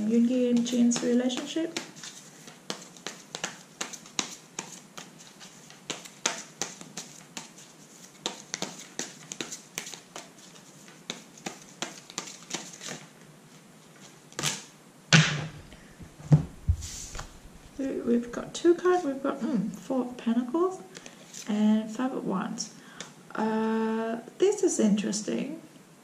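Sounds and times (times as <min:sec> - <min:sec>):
cards being shuffled: 0:00.5 - 0:13.2, 0:16.3 - 0:17.8
louder knocks: 0:15.2 - 0:16.9.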